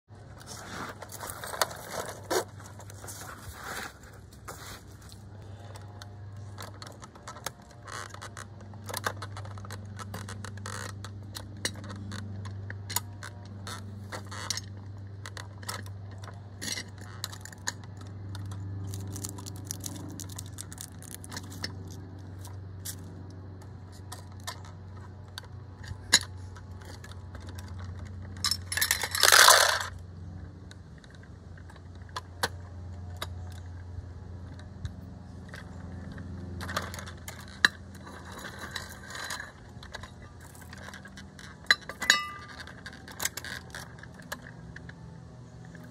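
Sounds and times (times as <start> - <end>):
steady low hum: 0.1 - 45.9
rustling scrape: 0.3 - 5.3
metallic clicks of toy truck: 5.7 - 23.1, 23.7 - 30.0, 34.5 - 45.9.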